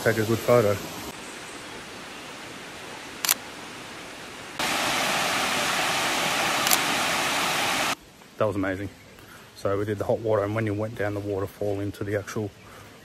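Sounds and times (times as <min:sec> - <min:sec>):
water rushing down cascade: 0:00.0 - 0:08.0
sharp click: 0:06.6 - 0:06.9.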